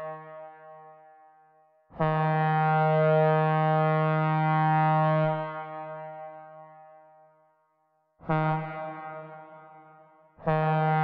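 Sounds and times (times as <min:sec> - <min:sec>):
synthesized train horn blasts: 0:08.3 - 0:09.8, 0:10.5 - 0:11.0.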